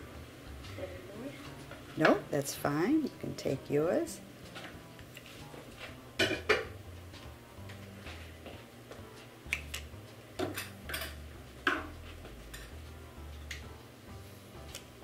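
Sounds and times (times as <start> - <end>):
dishes and utensils clinking: 6.2 - 6.8, 10.4 - 12.8.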